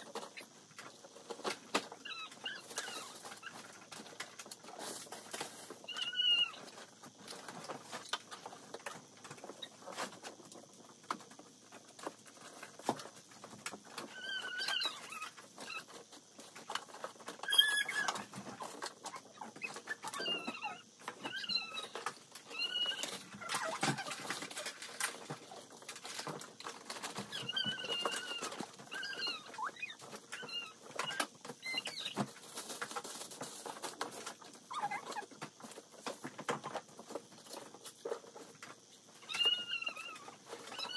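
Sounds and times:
short high squeaks: 17.4 - 18.3.

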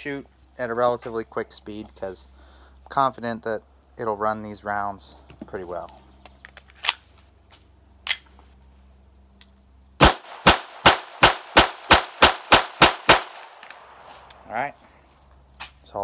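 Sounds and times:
pistol handling clicks: 6.5 - 7.0, 8.0 - 8.3
pistol shots: 10.0 - 14.1.

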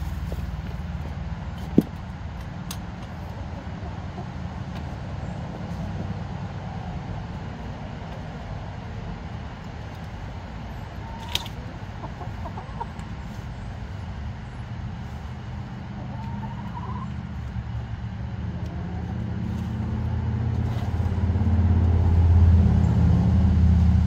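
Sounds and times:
steady low rumble: 0.0 - 24.0
hens clucking: 2.7 - 8.4, 9.0 - 21.5.

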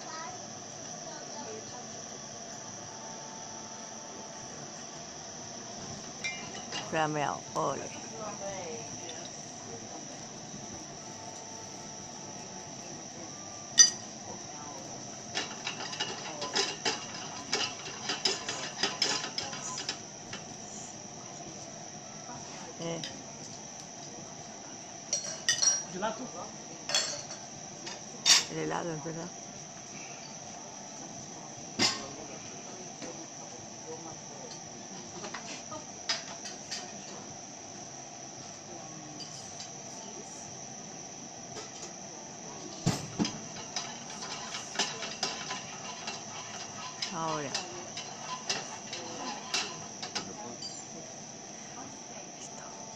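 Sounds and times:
low background hum: 0.0 - 52.9
insect-like trill: 3.8 - 21.3, 42.5 - 52.9
dishes and cutlery clinking: 13.8 - 14.0, 15.3 - 20.0, 25.1 - 25.9, 26.9 - 27.4, 43.2 - 50.9
utensils tapping and scraping pan: 15.3 - 20.4, 43.3 - 50.3.

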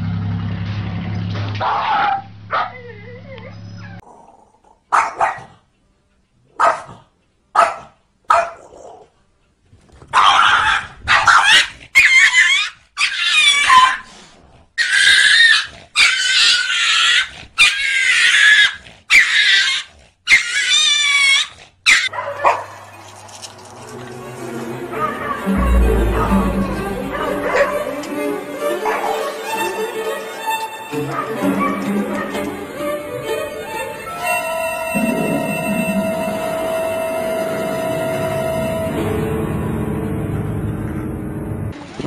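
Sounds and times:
dog barking: 1.6 - 3.0, 4.9 - 5.6, 6.5 - 9.1, 10.1 - 14.1, 21.4 - 22.8, 27.1 - 28.0, 28.8 - 29.6, 31.0 - 32.5
animals growling and yowling: 10.3 - 22.1, 22.8 - 39.2.

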